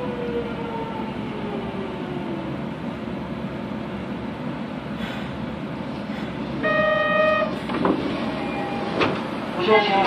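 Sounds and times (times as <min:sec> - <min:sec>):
train wheels rumbling on rail: 0:00.0 - 0:10.0.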